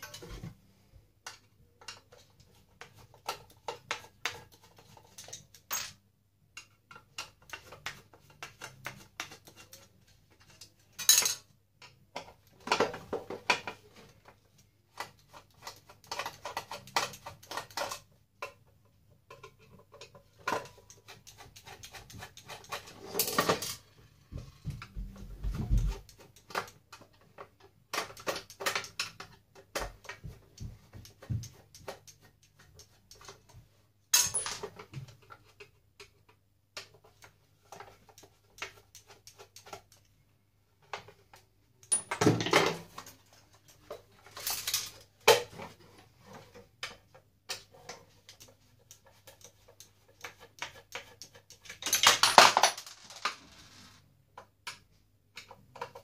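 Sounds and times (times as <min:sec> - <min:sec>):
screwdriver and metal parts clinking: 0:34.1 - 0:34.8, 0:41.8 - 0:42.6.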